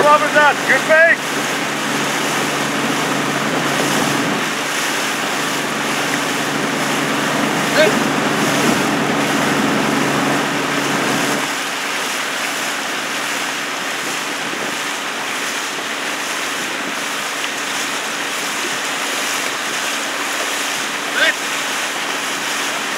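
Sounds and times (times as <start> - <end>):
low motor hum: 0.0 - 22.9
water rushing: 0.0 - 22.9
wind noise: 1.2 - 11.6, 12.9 - 20.2.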